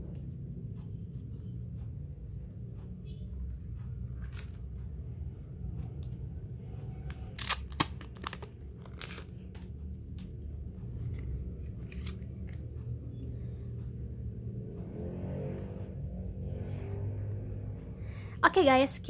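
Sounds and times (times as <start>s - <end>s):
steady low hum: 0.0s - 19.0s
crinkly packaging crackling: 7.3s - 9.8s.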